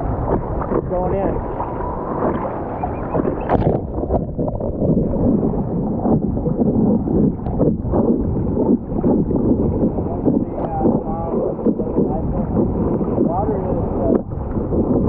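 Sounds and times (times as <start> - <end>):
sharp water splash: 0.0 - 4.4
seawater sloshing and splashing: 0.0 - 15.0
wind buffeting microphone: 0.0 - 15.0.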